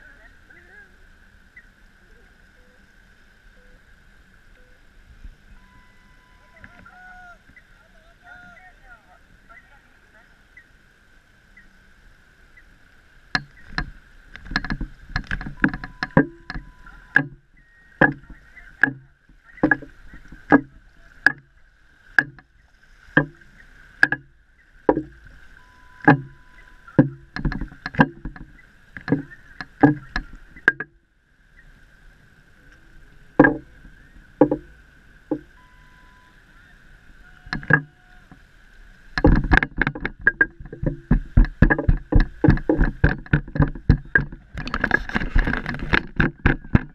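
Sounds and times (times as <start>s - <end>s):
water sloshing and splashing: 12.2s - 46.9s.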